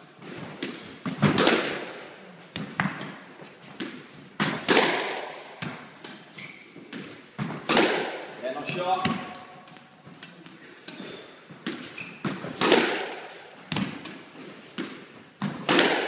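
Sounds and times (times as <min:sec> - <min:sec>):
squash ball hitting wall: 0:00.6 - 0:02.0, 0:03.8 - 0:06.2, 0:06.9 - 0:09.4, 0:11.6 - 0:16.0
shoe squeak: 0:06.0 - 0:06.9, 0:10.9 - 0:12.5.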